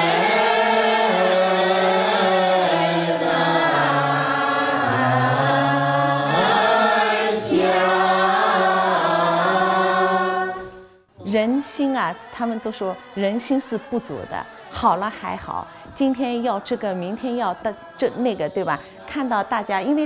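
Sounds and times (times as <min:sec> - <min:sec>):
woman chanting into microphone: 0:11.2 - 0:20.0.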